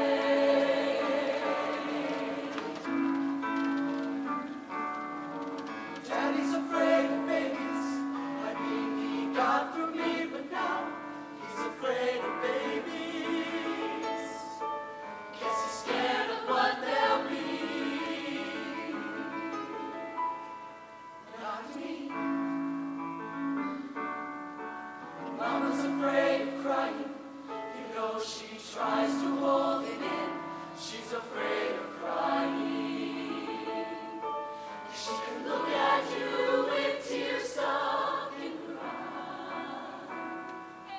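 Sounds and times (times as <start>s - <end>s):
choir singing in harmony: 0.0s - 4.3s, 5.3s - 20.2s, 21.2s - 22.9s, 25.1s - 40.9s.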